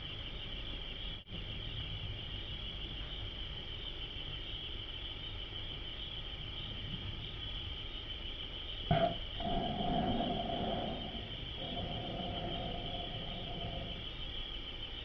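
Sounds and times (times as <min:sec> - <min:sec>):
insects chirring: 0:00.0 - 0:15.0
low rumble: 0:08.9 - 0:14.4.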